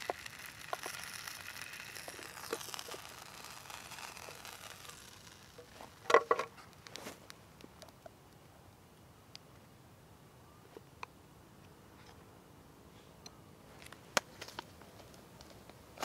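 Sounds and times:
meat sizzling in a pan: 0:00.0 - 0:05.9.

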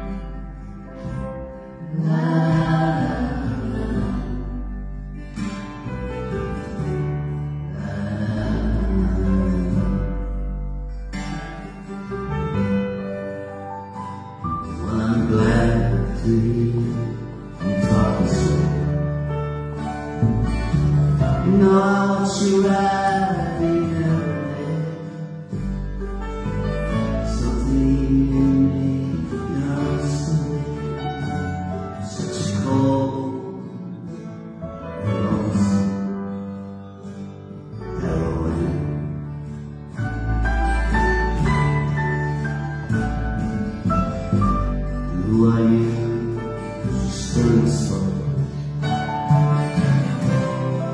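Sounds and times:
acoustic guitars: 0:00.0 - 0:50.9
double bass: 0:00.0 - 0:50.9
piano: 0:00.0 - 0:50.9
person singing: 0:01.8 - 0:05.0, 0:07.6 - 0:10.6, 0:14.6 - 0:19.2, 0:21.1 - 0:26.0, 0:27.1 - 0:34.2, 0:35.0 - 0:36.2, 0:37.8 - 0:39.2, 0:44.6 - 0:50.9.

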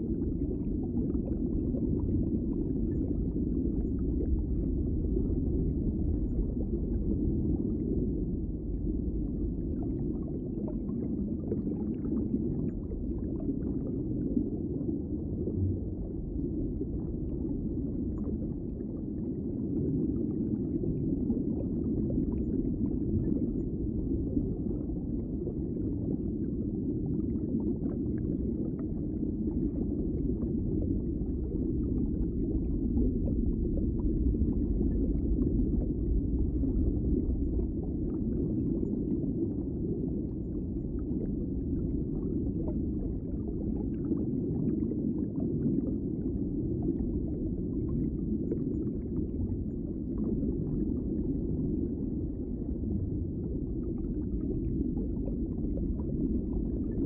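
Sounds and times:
muffled underwater rumble: 0:00.0 - 0:57.0.

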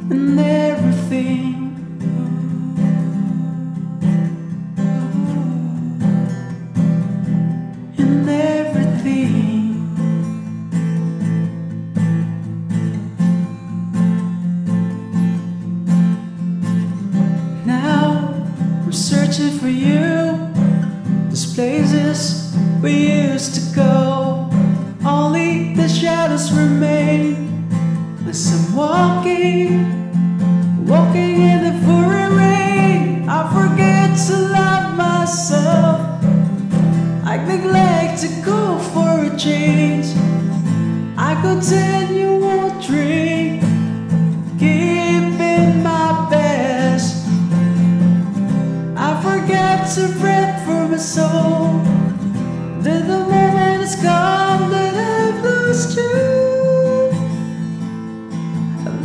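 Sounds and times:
man singing a pop ballad: 0:00.0 - 0:06.5, 0:07.9 - 0:10.4, 0:17.5 - 0:30.1, 0:30.8 - 0:36.4, 0:37.2 - 0:47.7, 0:49.0 - 0:52.1, 0:52.8 - 0:57.3, 0:58.8 - 0:59.0
acoustic guitar: 0:00.0 - 0:59.0.

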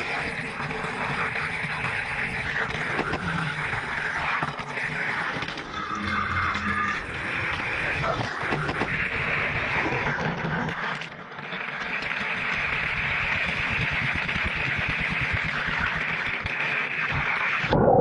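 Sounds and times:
toy car wheels rolling on track: 0:00.0 - 0:17.7.

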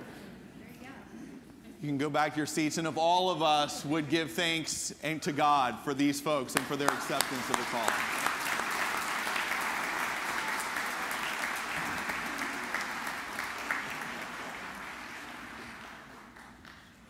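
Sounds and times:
congregation applauding: 0:06.5 - 0:17.0.

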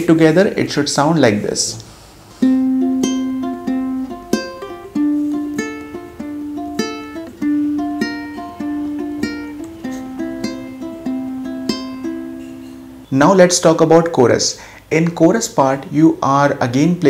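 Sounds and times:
ukulele fingerpicked: 0:02.4 - 0:13.1.

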